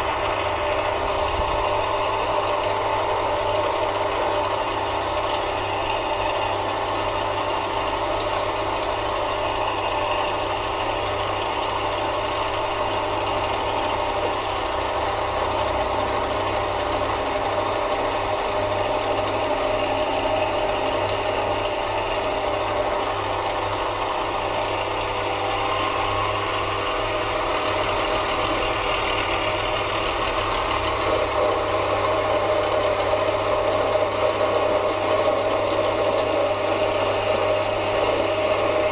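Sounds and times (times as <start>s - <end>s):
lathe motor humming: 0.0s - 38.9s.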